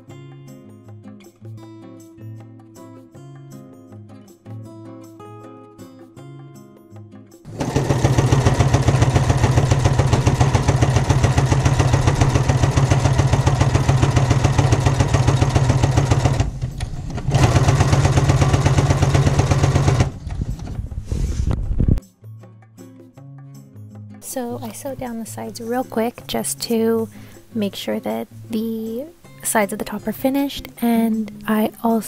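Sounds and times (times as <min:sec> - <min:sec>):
sewing machine stitching: 0:07.5 - 0:20.9.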